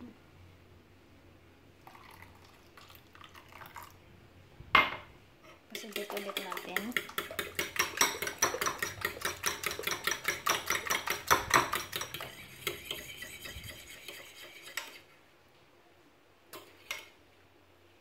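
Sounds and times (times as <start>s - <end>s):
fork beating eggs in bowl: 5.7s - 15.2s, 16.6s - 17.2s.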